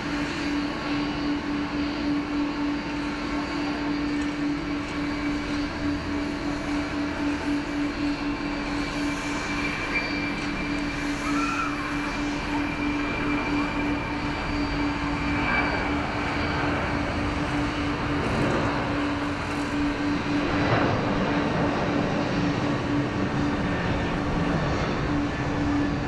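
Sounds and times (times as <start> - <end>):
jet engines running: 0.0 - 26.0.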